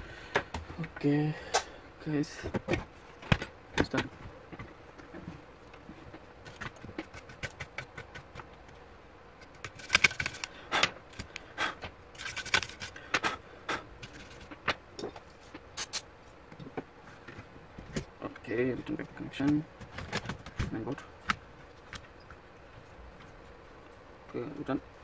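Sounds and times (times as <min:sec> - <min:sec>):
clicks taps and scrapes on laptop chassis: 0:06.4 - 0:08.8.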